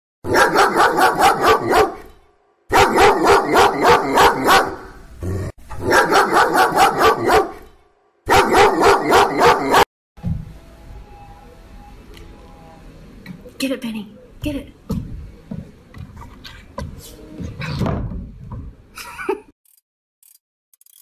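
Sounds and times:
dog barking rapidly: 0.2 - 2.0, 2.7 - 5.0, 5.8 - 7.6, 8.3 - 9.9.

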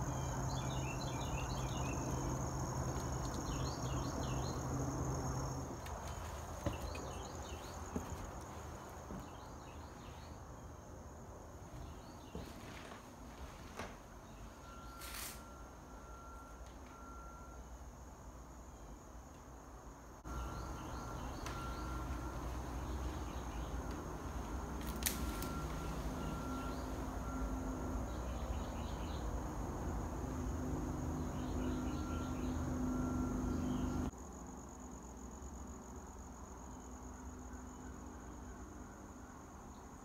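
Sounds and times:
insect trill: 0.0 - 13.0, 13.8 - 40.0
bird chirps: 20.3 - 23.8, 31.2 - 34.1.

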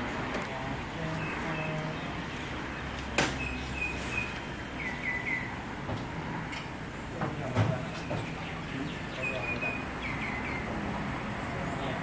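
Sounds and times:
workshop background noise: 0.0 - 12.0
small birds chirping: 0.6 - 5.6, 7.8 - 12.0.

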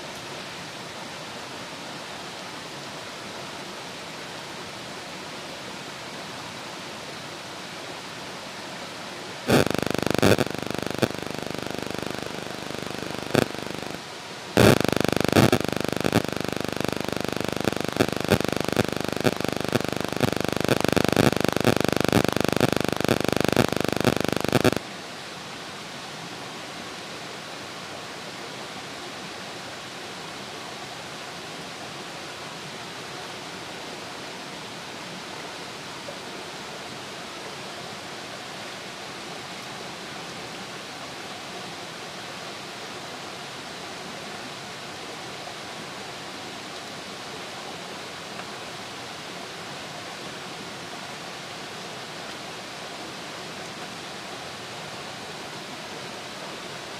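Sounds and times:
forest stream rushing: 0.0 - 9.6, 24.8 - 56.9
loud rough clicking noise: 14.6 - 24.8.

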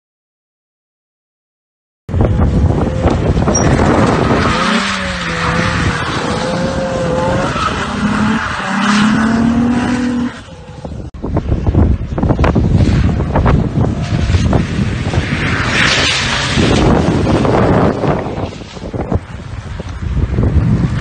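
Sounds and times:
car engine revving: 2.7 - 10.8
tyres sliding through water: 12.8 - 19.8.

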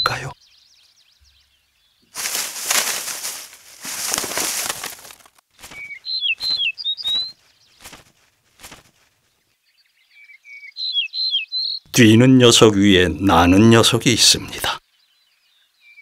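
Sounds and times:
rustling through dry leaves: 2.1 - 9.4
bird wingbeats: 2.2 - 9.4
high bird chirps: 5.6 - 8.0, 9.7 - 11.9.

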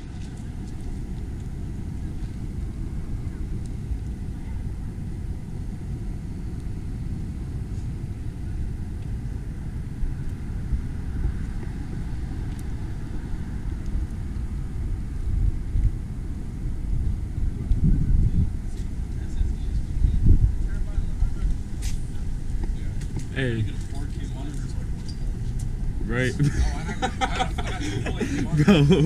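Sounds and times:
low rumble: 0.0 - 29.0.

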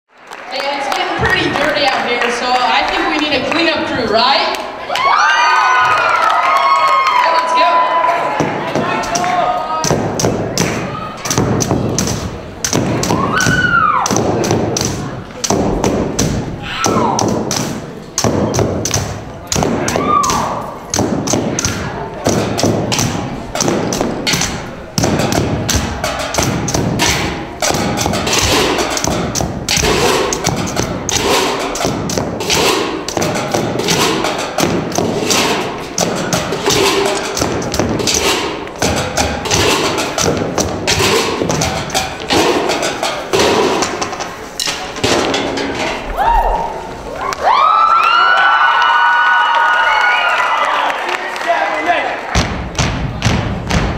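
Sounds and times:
voices whooping: 4.8 - 8.4, 13.1 - 14.1, 19.8 - 20.8, 46.1 - 51.6
dance steps thumping and tapping: 8.4 - 42.6, 52.3 - 53.9.

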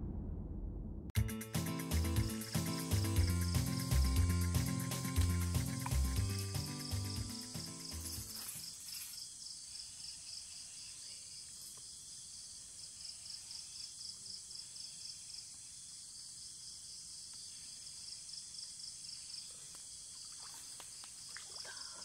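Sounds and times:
faint low outdoor rumble: 0.0 - 1.1
insects trilling: 1.8 - 22.0.

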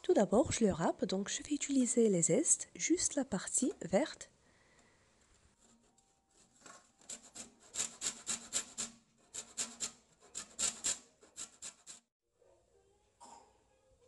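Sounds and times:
lemon scraping on metal grater: 7.0 - 12.1.

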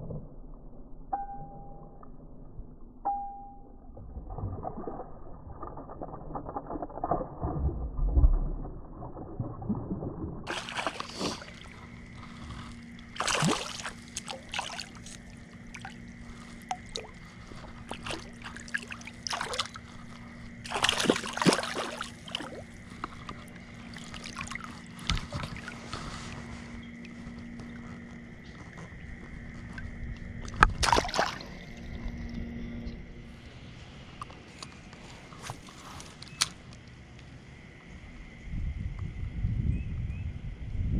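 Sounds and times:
faint steady whine: 0.1 - 4.1, 10.5 - 40.9
water sloshing and splashing: 3.8 - 36.8.

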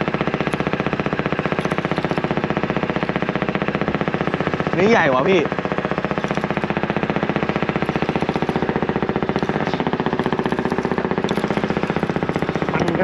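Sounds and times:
boat diesel engine chugging: 0.0 - 13.0.

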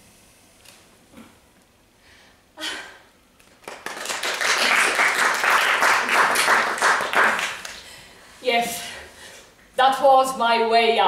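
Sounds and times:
audience applause: 3.6 - 7.8.

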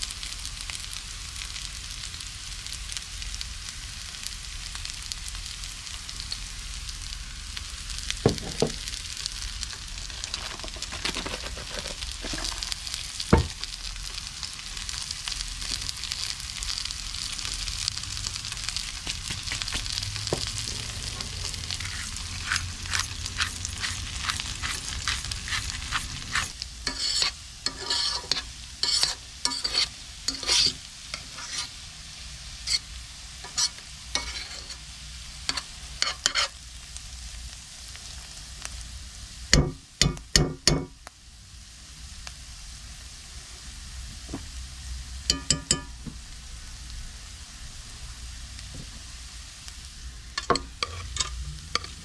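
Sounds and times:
food sizzling in skillet: 0.0 - 52.0
metal spoon scraping pan: 10.0 - 13.5, 20.6 - 31.8, 32.6 - 34.8, 35.5 - 36.6, 45.3 - 45.9, 50.4 - 52.0.

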